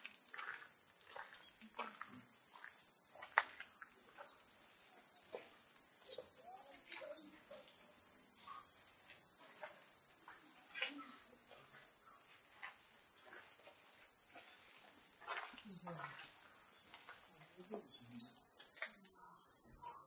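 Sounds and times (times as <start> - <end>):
high-pitched insect chorus: 0.0 - 20.0.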